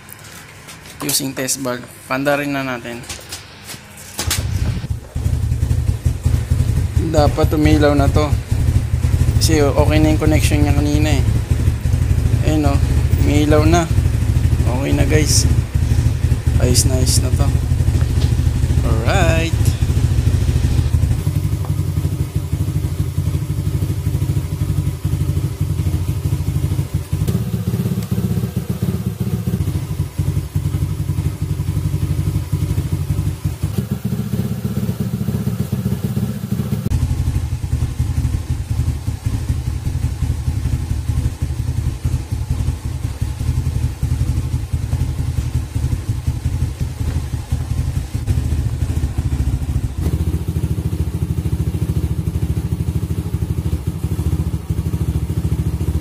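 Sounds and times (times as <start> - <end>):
motorcycle engine idling: 4.4 - 56.0.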